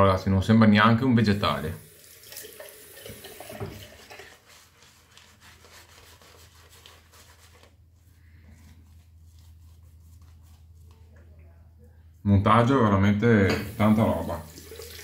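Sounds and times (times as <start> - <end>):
shaving brush swishing in lather: 3.9 - 11.2.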